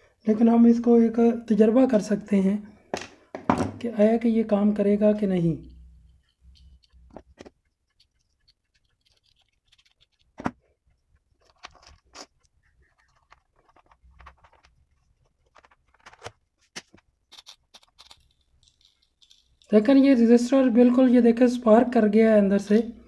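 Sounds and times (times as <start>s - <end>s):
plastic relay and test leads clicking: 5.6s - 10.4s.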